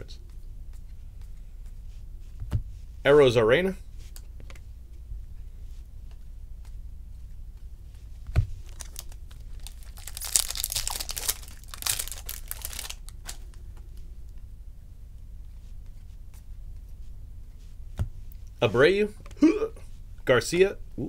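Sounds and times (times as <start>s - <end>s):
wrapper crinkling and tearing: 8.6s - 13.6s.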